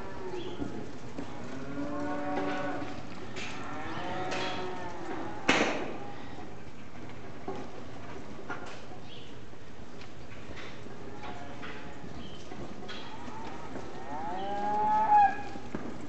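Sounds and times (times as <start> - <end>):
cattle mooing: 1.4 - 6.2, 13.0 - 15.7.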